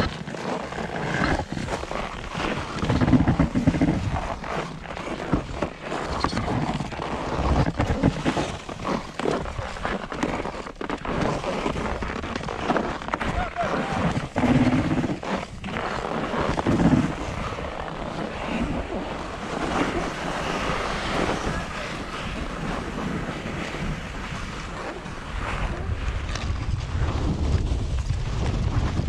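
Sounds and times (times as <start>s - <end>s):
sliding on snow: 0.0s - 29.0s
wind buffeting microphone: 13.3s - 29.0s.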